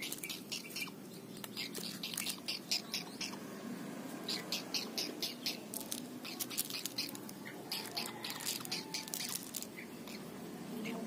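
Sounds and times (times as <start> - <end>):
heron chicks begging calls: 0.0 - 3.4, 4.2 - 11.0.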